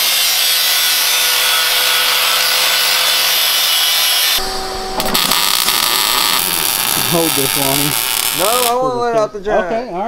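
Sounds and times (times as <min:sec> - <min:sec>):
angle grinder sanding steel: 0:00.0 - 0:08.8.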